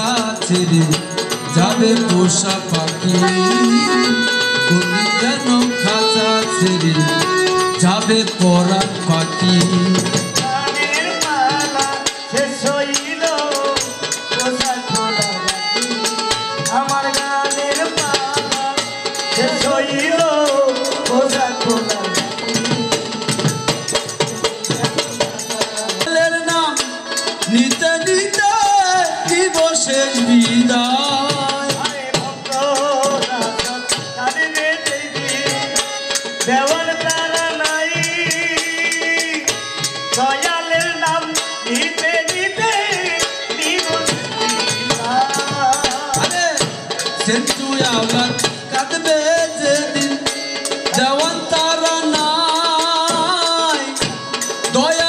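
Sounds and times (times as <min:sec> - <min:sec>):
fast percussion: 0:00.0 - 0:55.0
melodic instrument playing: 0:00.7 - 0:11.8.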